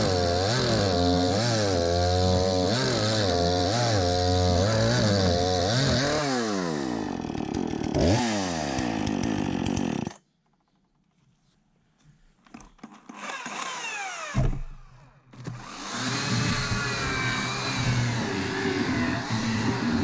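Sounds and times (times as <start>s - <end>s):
electric chainsaw sawing log: 0.0s - 10.2s, 12.8s - 14.5s, 15.4s - 20.0s
two-stroke chainsaw revving: 0.0s - 10.2s, 13.1s - 14.4s, 15.5s - 20.0s.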